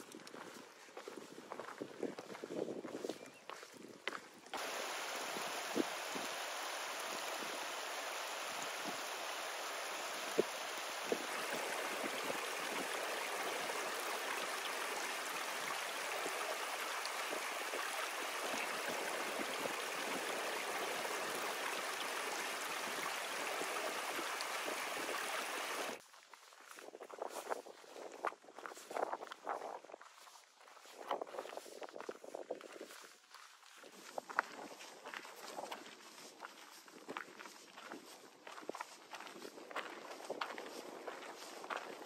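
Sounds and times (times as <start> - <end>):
stream splashing over rocks: 4.6 - 26.0.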